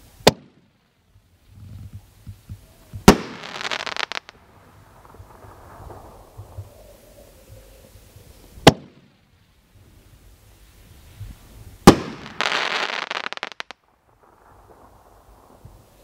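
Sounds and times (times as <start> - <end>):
dense firework crackling: 0.0 - 16.0
firework launch bang: 3.0 - 9.1, 11.8 - 16.0.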